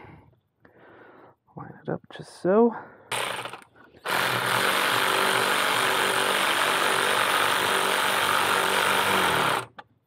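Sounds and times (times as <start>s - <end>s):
electric ratchet running: 3.1s - 9.8s.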